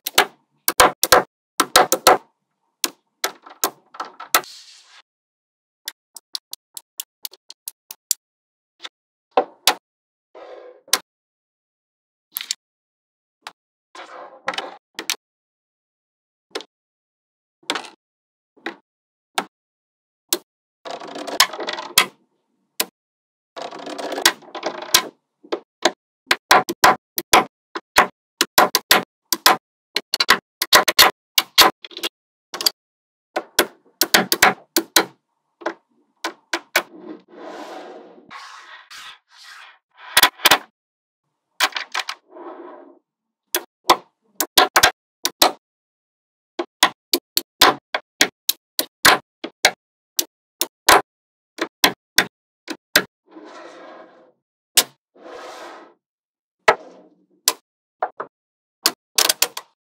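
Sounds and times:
soft scraping on table: 36.9s - 40.1s, 53.3s - 54.4s, 55.2s - 56.0s.

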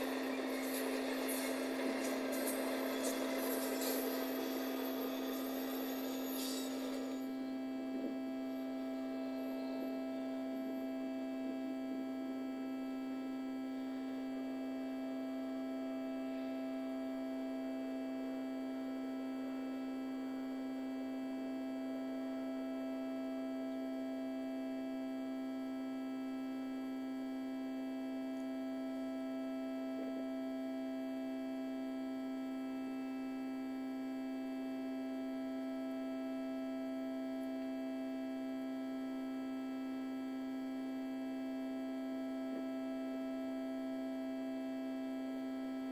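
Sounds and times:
electrical hum: 0.0s - 18.4s.

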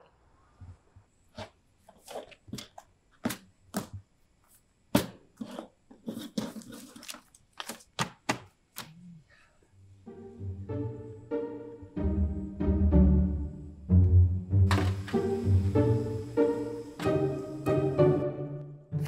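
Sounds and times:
music with low notes: 10.0s - 19.0s.

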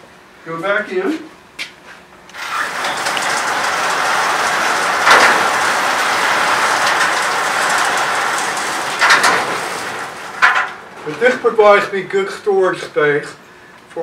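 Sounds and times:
storage rack rolling on track: 2.3s - 12.9s
rack knocking: 2.9s - 11.3s.

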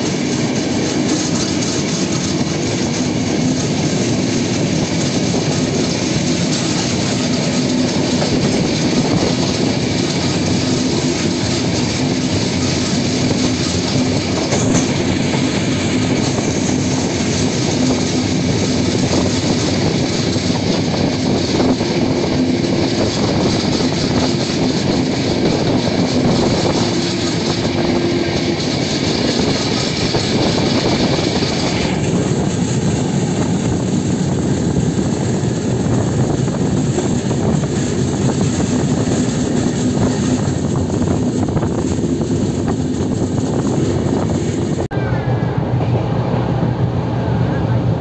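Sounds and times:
train wheels running: 0.0s - 48.0s.

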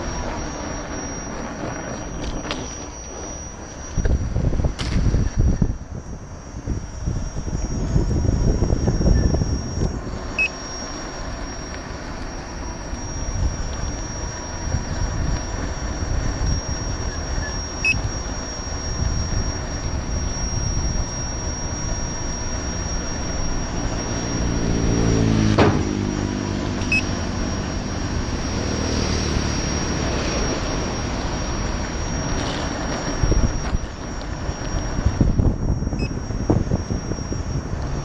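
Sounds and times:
wind buffeting microphone: 0.0s - 10.5s, 13.0s - 38.0s
engine drone: 0.0s - 38.0s
thin high whine: 0.0s - 38.0s.

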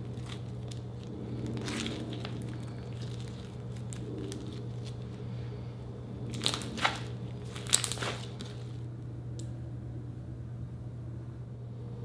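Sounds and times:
slime crackling and popping: 0.0s - 5.2s, 6.2s - 8.8s.

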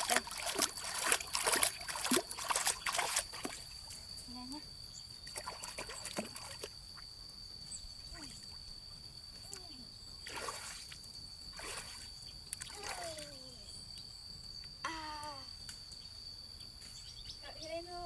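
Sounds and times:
water splashes: 0.0s - 3.7s, 5.2s - 7.0s, 10.2s - 13.5s
water sloshing: 0.0s - 3.8s, 5.2s - 7.0s.

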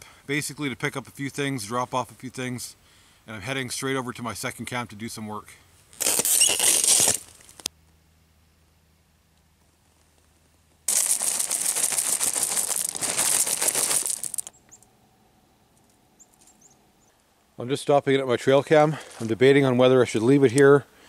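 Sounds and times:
dense crunching and rustling: 5.9s - 7.7s, 10.9s - 14.5s, 18.7s - 19.6s
faint high bird chirps: 16.1s - 17.2s.

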